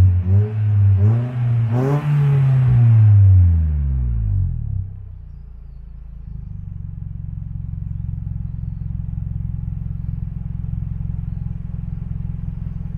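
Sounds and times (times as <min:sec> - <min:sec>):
car engine idling: 0:02.7 - 0:12.9.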